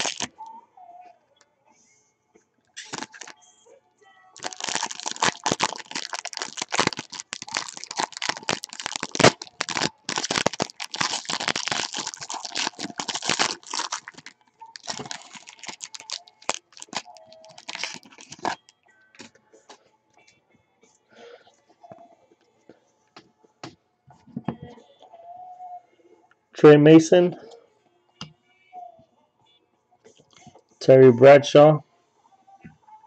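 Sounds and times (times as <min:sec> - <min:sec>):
foil wrapper tearing and crinkling: 0:00.0 - 0:00.3, 0:02.8 - 0:03.3, 0:04.4 - 0:18.6.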